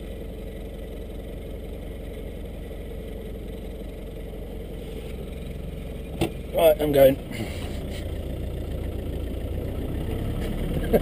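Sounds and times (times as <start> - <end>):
car engine idling: 0.0 - 11.0.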